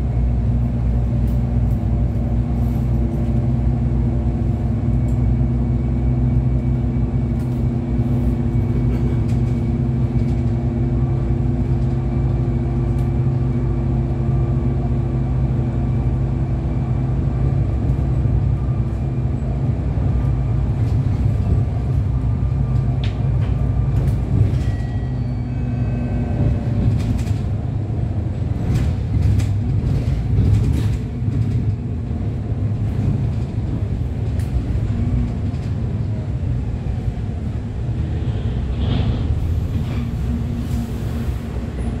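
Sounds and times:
vehicle rumble from inside cabin: 0.0s - 42.0s.

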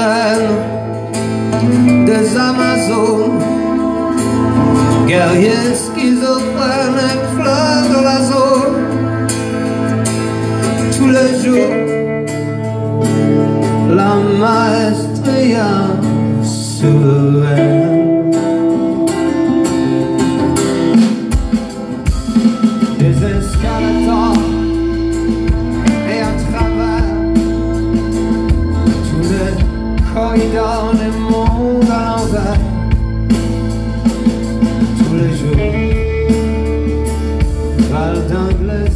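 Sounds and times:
person singing: 0.0s - 20.6s, 22.0s - 33.2s, 34.4s - 38.9s
bass and drums: 0.0s - 38.9s
strummed acoustic guitars: 0.0s - 38.9s.

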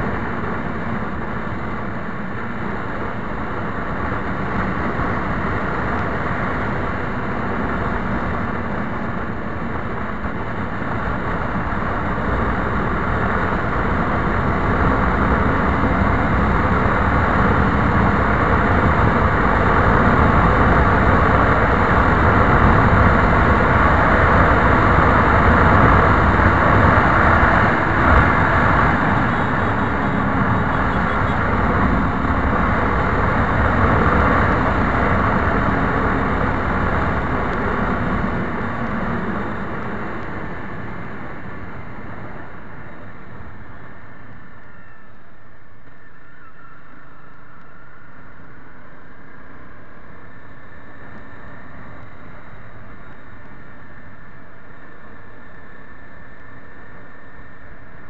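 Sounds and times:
wind rush over microphone: 0.0s - 44.5s
motorcycle engine running: 2.5s - 40.9s.

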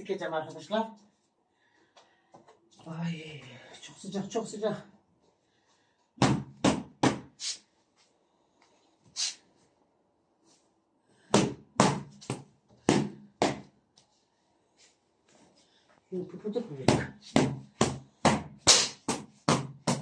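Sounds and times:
whacks on a quilt: 17.4s - 20.0s.

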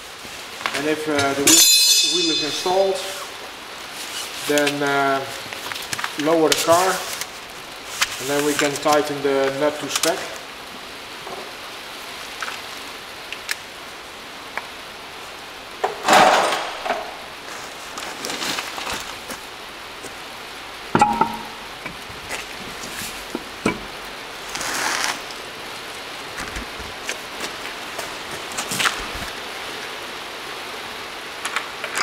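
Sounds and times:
sharp metallic clink: 1.4s - 3.3s, 21.0s - 21.6s
scraping or rustling: 16.1s - 19.4s, 24.4s - 25.4s.

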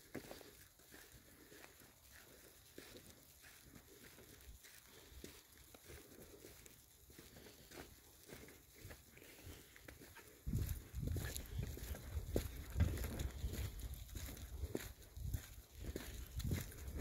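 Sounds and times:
footsteps on dirt track: 0.0s - 17.0s.

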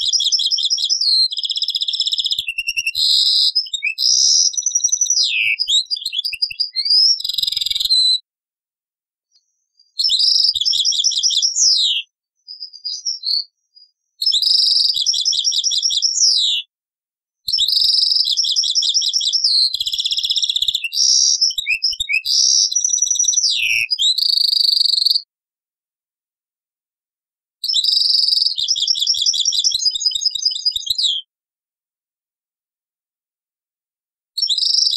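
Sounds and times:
bird twittering trills: 0.0s - 8.1s.

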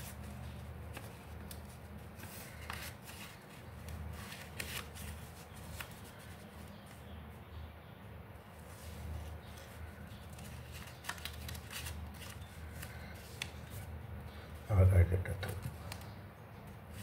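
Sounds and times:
paper rustling while folded: 0.0s - 7.0s, 8.5s - 14.6s.

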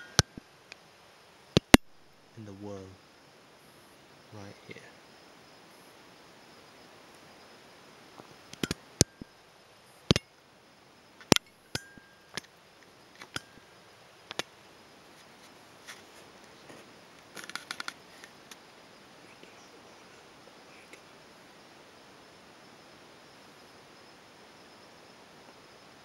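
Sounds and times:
clicks of handled gear: 17.3s - 18.4s.

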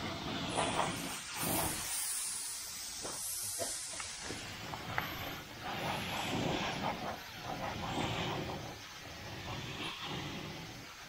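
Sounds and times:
air spray gun hissing: 0.0s - 8.6s.

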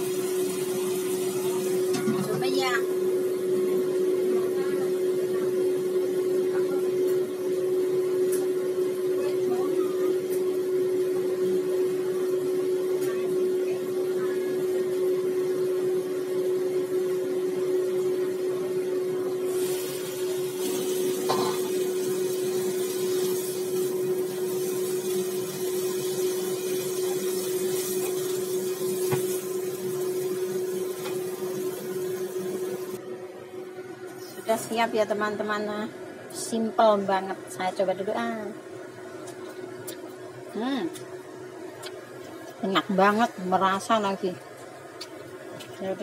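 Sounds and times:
food sizzling in a wok: 0.0s - 4.8s, 19.4s - 33.0s.

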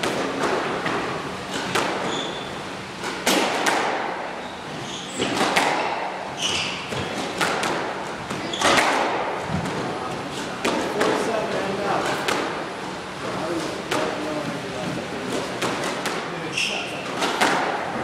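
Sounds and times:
squash ball cracks: 0.0s - 2.1s, 3.0s - 4.2s, 5.2s - 6.2s, 6.9s - 9.8s, 12.1s - 12.6s, 17.1s - 17.9s
shoes squeaking on wooden floor: 2.0s - 2.6s, 4.4s - 5.4s, 6.3s - 7.3s, 8.4s - 8.8s.

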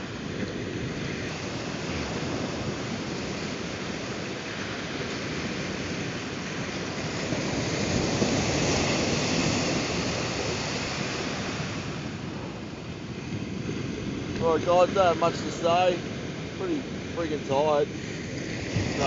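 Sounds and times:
ocean surf washing on beach: 0.0s - 19.0s.

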